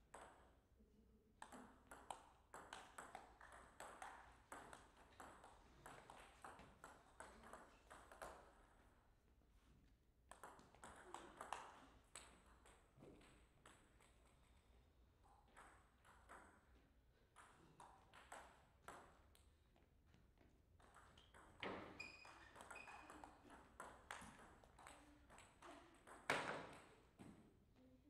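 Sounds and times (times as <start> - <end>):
ping pong ball clicking: 1.4 - 8.4, 20.8 - 26.9.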